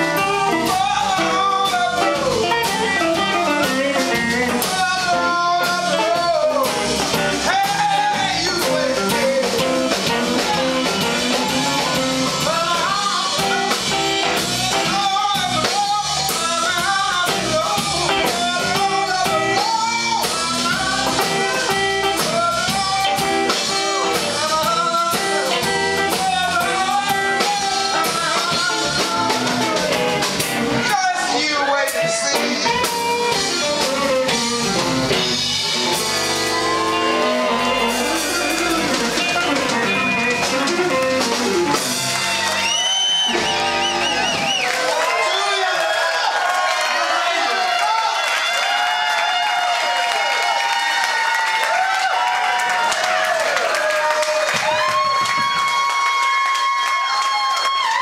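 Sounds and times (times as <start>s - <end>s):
blues band playing: 0.0s - 58.0s
man and woman singing: 0.2s - 13.9s, 14.5s - 30.1s.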